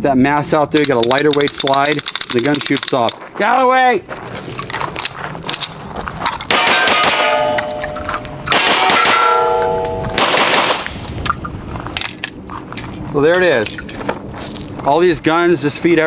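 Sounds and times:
pistol shots: 0:06.5 - 0:07.8, 0:08.4 - 0:11.0
steel plate clanging: 0:06.5 - 0:10.2.

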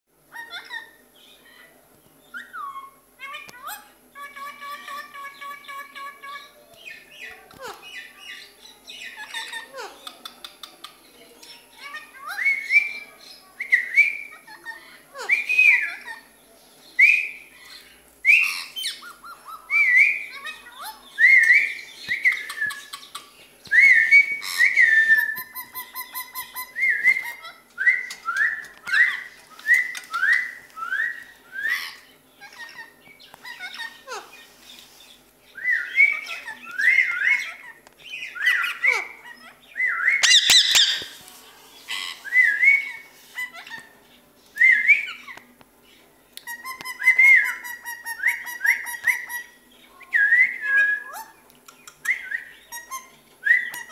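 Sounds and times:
parakeets whistling: 0:17.0 - 0:41.2, 0:41.8 - 0:43.9, 0:46.5 - 0:49.5.

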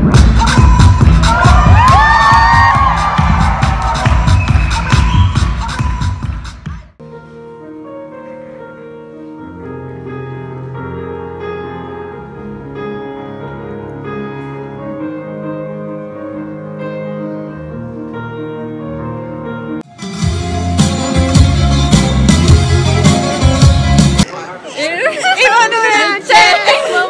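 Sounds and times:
loud music: 0:00.0 - 0:07.0, 0:19.8 - 0:24.3
grand piano playing slow chords: 0:07.0 - 0:19.9.

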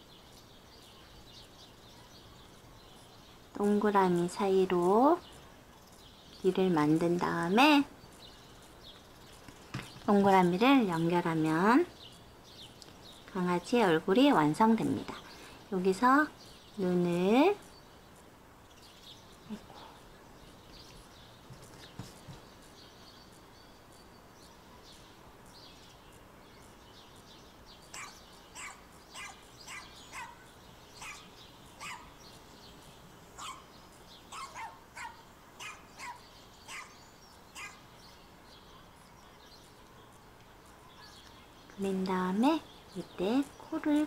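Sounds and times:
faint dog barking: 0:27.9 - 0:32.2, 0:33.4 - 0:33.7, 0:34.3 - 0:37.0, 0:37.6 - 0:37.8.

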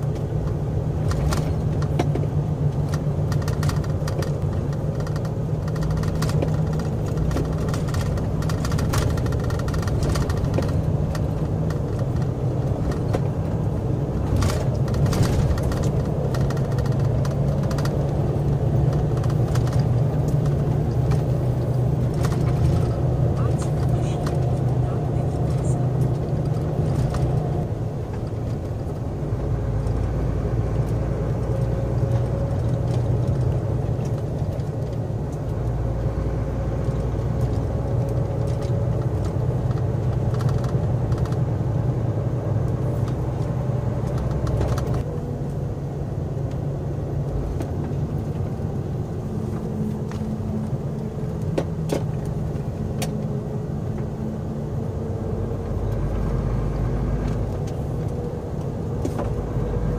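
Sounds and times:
clicks and rattles: 0:00.0 - 0:13.4, 0:14.2 - 0:24.8, 0:25.4 - 0:29.0, 0:37.4 - 0:41.5
heavy vehicle engine drone: 0:00.0 - 0:59.9.

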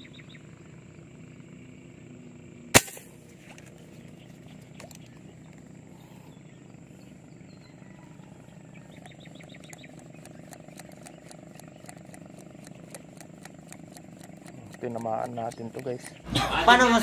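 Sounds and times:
reel clicking: 0:08.9 - 0:16.3.

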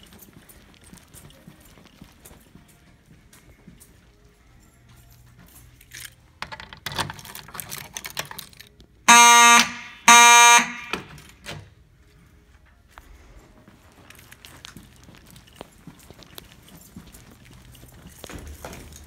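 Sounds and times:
fire alarm horn blasts: 0:09.1 - 0:11.2.

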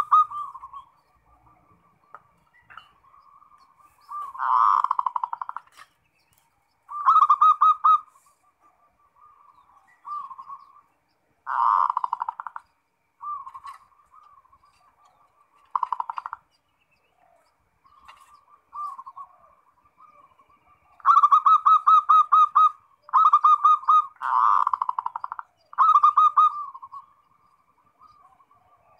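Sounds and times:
doves cooing: 0:00.0 - 0:28.9.

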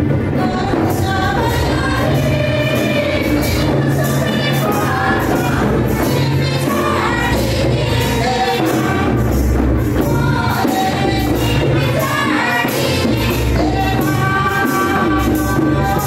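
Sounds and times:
group of people singing: 0:00.0 - 0:16.0
instrumental accompaniment: 0:00.0 - 0:16.0.

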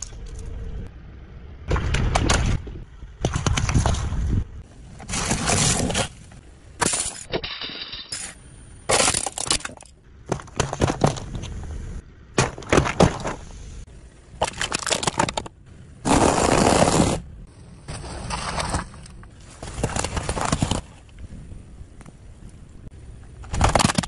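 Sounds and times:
objects crushed under car tyre: 0:08.9 - 0:11.4, 0:12.4 - 0:13.6, 0:17.9 - 0:21.1, 0:23.4 - 0:24.0.

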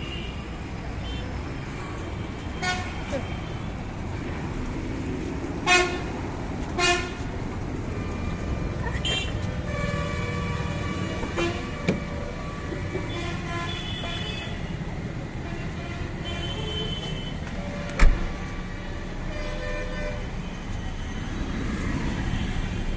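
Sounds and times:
low rumble of engines: 0:00.0 - 0:22.9
car horns tooting: 0:12.8 - 0:14.7.

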